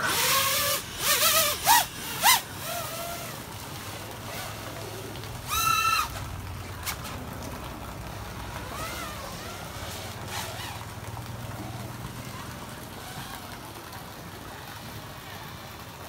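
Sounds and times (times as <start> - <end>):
quadcopter motors whining: 0.0 - 7.2, 8.5 - 11.8, 12.9 - 13.8
steady background hiss: 0.0 - 16.0.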